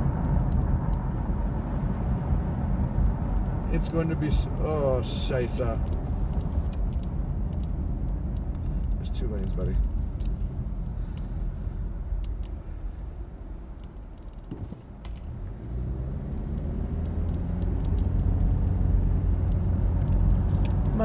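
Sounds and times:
car engine: 0.0 - 21.0.

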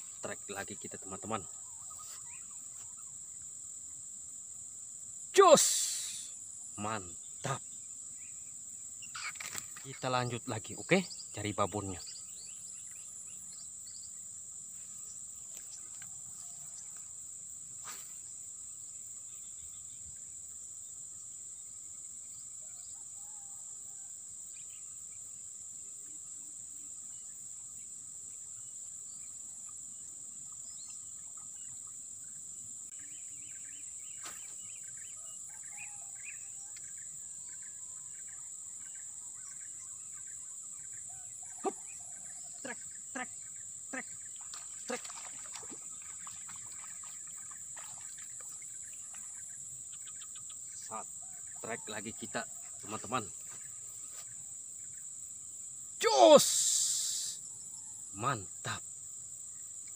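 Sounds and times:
faint bird chirps: 0.0 - 4.1, 5.3 - 17.2, 26.0 - 55.1
insects buzzing: 0.0 - 59.9.

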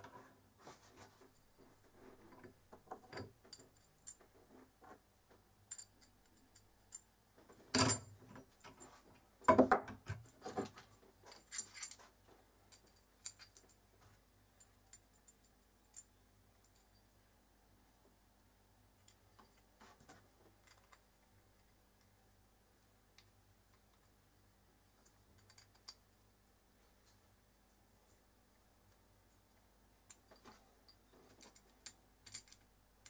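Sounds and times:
metal parts and tools clinking: 5.6 - 12.1, 12.7 - 13.8, 25.0 - 26.1, 30.0 - 32.7.

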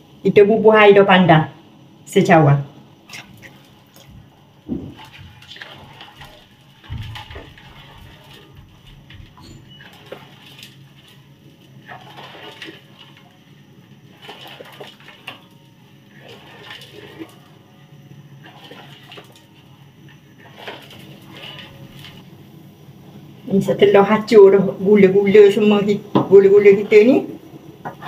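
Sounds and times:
liquid sloshing: 3.1 - 22.3
spatula scraping a metal pan: 4.9 - 13.4, 14.0 - 17.6, 18.4 - 19.4, 20.2 - 22.2.

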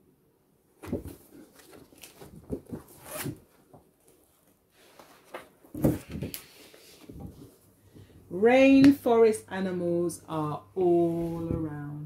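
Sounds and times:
paper pages rustling and flapping: 0.8 - 7.6.

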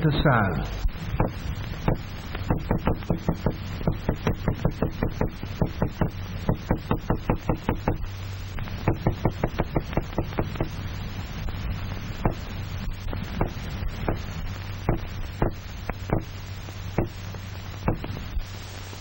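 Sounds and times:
steady low hum: 0.0 - 19.0
small hammer rapping on tabletop: 1.2 - 8.1.

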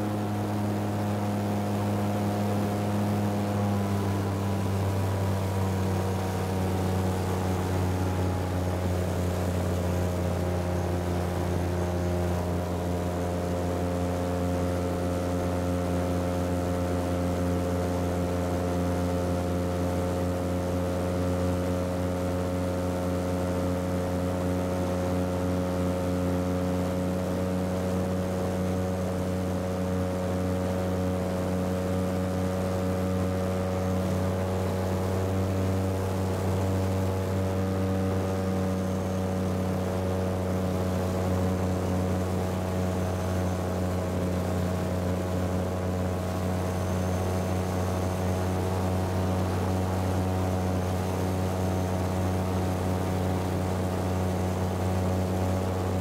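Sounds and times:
aircraft engine and propeller droning: 0.0 - 56.0.

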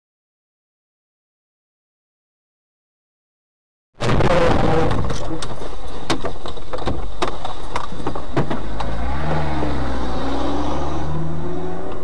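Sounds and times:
knocks and rattles in car: 4.3 - 8.9
low engine hum: 4.3 - 12.0.

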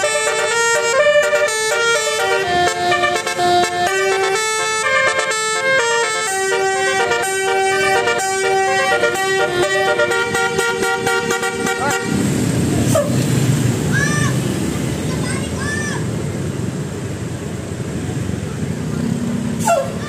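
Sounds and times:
bus air horns playing a melody: 0.0 - 13.2, 19.6 - 20.0
engine and street rumble: 0.0 - 20.0.

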